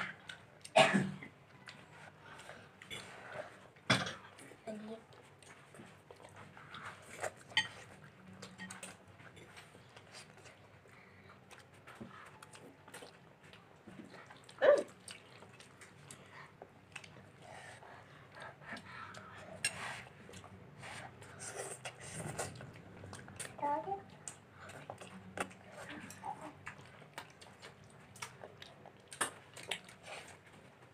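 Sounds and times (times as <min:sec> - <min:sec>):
chewing: 0:00.0 - 0:30.9.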